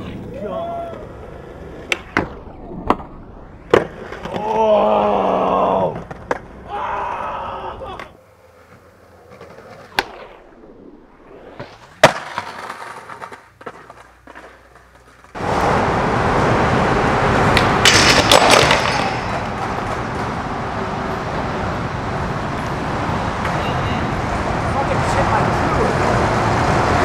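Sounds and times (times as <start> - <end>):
skateboard rolling on concrete: 0.0 - 6.9, 7.8 - 27.0
skater slamming onto pavement: 11.6 - 15.7, 17.7 - 20.3
skateboard clacks: 12.0 - 15.6, 17.4 - 20.7.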